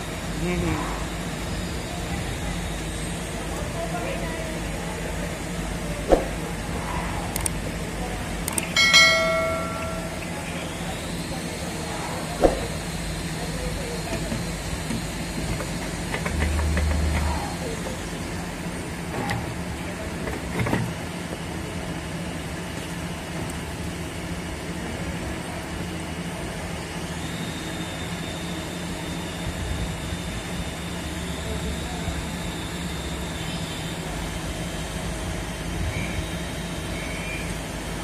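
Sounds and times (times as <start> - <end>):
workshop machinery hum: 0.0 - 38.0
sharp metal clicks: 8.4 - 8.8.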